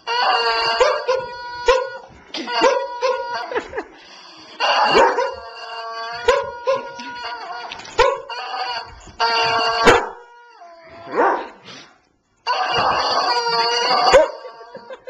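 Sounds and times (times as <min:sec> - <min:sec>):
rubber chicken toy squawking: 0:12.5 - 0:14.5.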